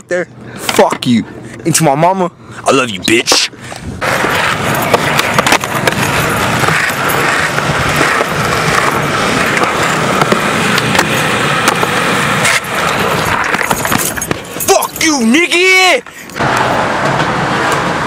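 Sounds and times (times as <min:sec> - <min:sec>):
skateboard wheels rolling on concrete: 0:03.0 - 0:18.0
skateboard popping and landing: 0:03.3 - 0:14.6, 0:16.4 - 0:18.0.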